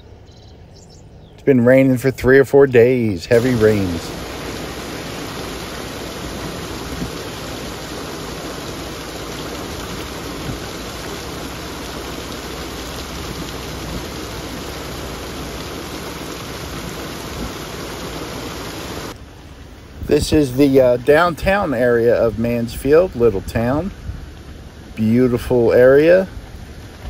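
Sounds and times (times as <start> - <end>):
heavy rain falling: 2.9 - 27.0
runoff splashing onto ground: 3.3 - 19.2.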